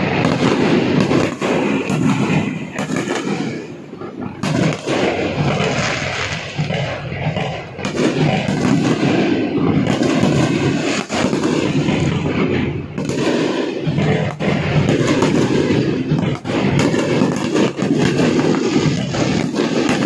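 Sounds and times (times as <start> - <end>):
fireworks banging and crackling: 0.0 - 20.0.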